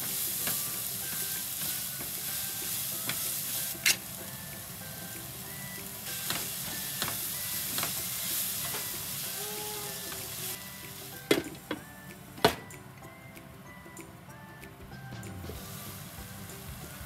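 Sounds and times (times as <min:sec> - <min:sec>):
food sizzling in a frying pan: 0:00.0 - 0:12.6, 0:15.4 - 0:17.0
soft background music: 0:00.0 - 0:17.0
utensil knocking against pan: 0:11.3 - 0:11.8.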